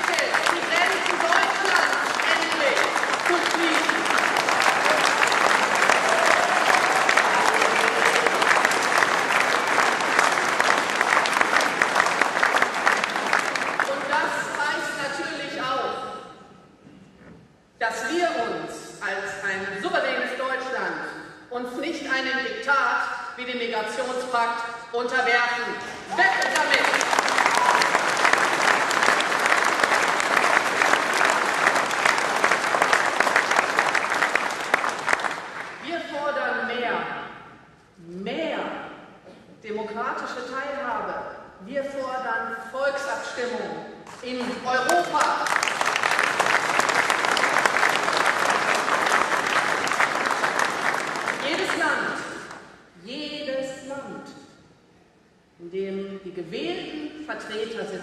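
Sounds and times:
audience applauding: 0.0s - 14.7s, 26.1s - 35.8s, 44.6s - 52.6s.

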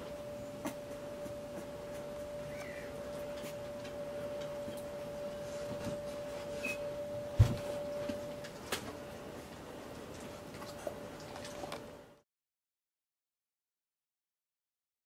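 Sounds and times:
high-pitched hum: 0.0s - 9.8s.

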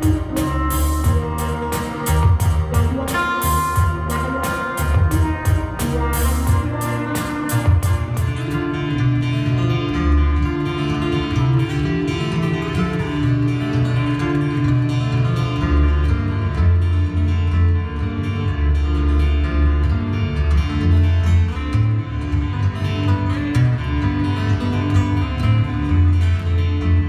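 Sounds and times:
sharp percussive hits: 0.0s - 8.6s
electric-acoustic guitar playing: 0.0s - 27.0s.

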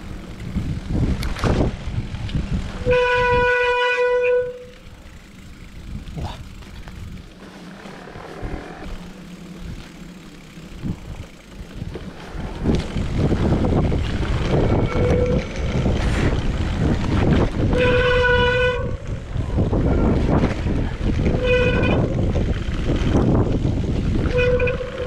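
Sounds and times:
bike riding rumble: 0.0s - 25.0s
bike brakes squealing: 24.2s - 25.0s.

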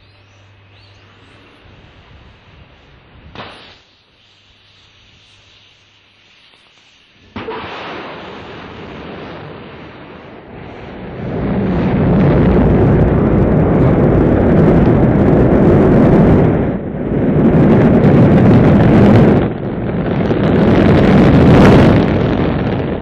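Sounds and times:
rocket launch roar: 3.3s - 3.9s, 7.2s - 23.0s.

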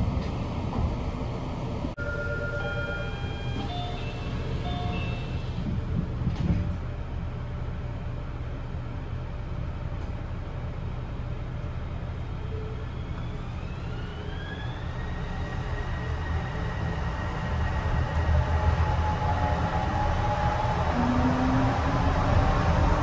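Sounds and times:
sliding doors shutting: 3.3s - 6.8s.

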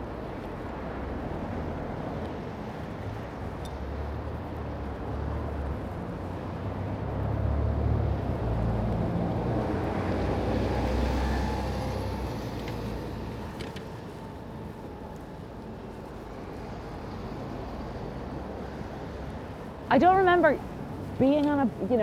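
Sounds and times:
city street traffic: 0.0s - 22.0s
wind rumble on microphone: 0.0s - 22.0s
vehicle passing by: 4.6s - 13.5s.

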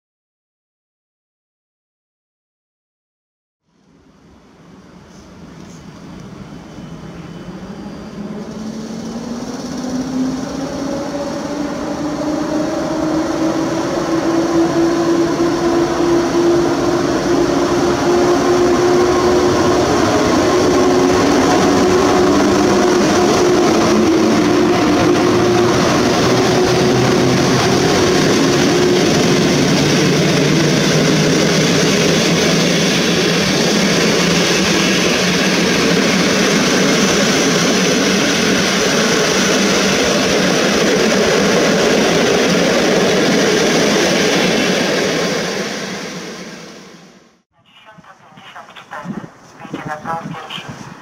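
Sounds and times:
locomotive humming tone: 4.0s - 38.3s
train wheels rumbling on track: 4.8s - 47.1s.

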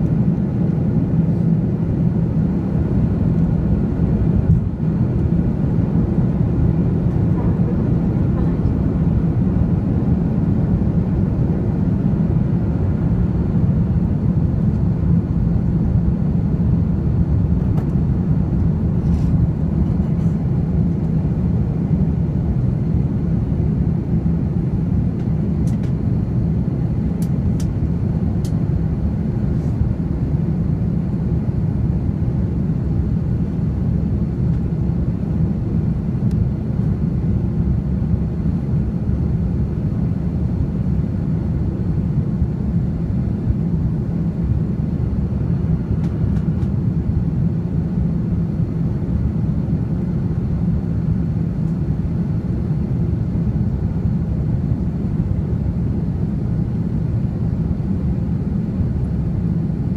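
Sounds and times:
jet engine low rumble: 0.0s - 59.9s.

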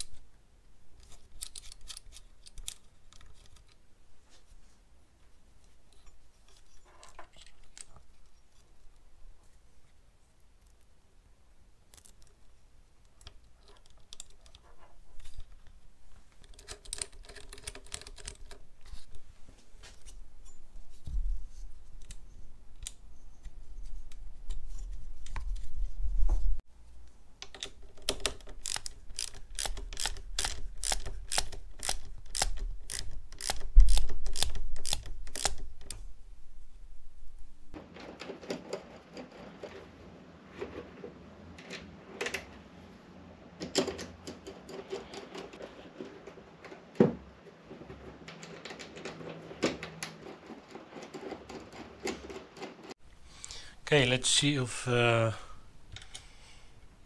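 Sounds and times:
small clicks and rattles of wiring: 1.0s - 3.9s, 5.6s - 9.1s, 11.8s - 19.2s, 27.4s - 36.1s.

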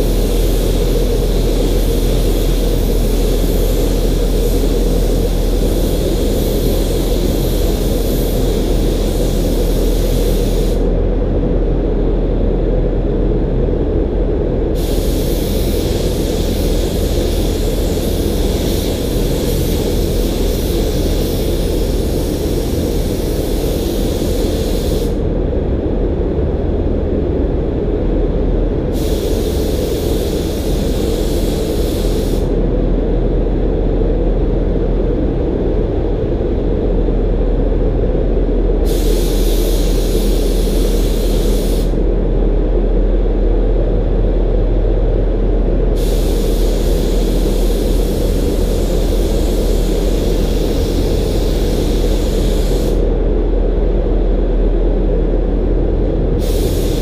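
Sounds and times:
spray gun hissing: 0.0s - 10.9s, 14.8s - 25.2s, 28.9s - 32.5s, 38.8s - 42.0s, 46.0s - 53.1s, 56.4s - 57.0s
steady low rumble: 0.0s - 57.0s.

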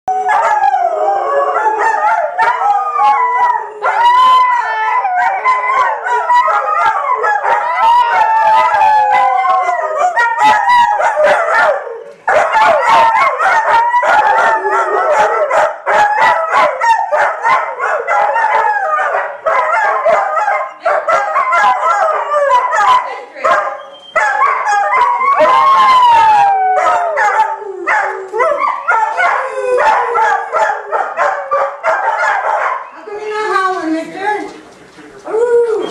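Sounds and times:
dogs howling in chorus: 0.1s - 33.0s
dog barks and yips: 10.0s - 26.2s, 26.8s - 32.9s.

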